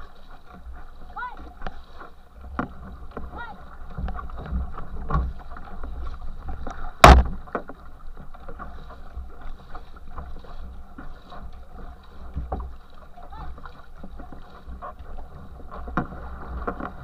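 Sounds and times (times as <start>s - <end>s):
paddle strokes splashing: 0.0s - 17.0s
water churning in a wake: 0.0s - 17.0s
sudden loud hit: 7.0s - 7.3s.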